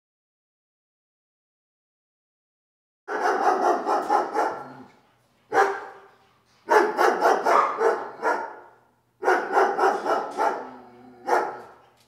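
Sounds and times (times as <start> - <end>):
dog barking: 3.1 - 4.9, 5.5 - 11.9.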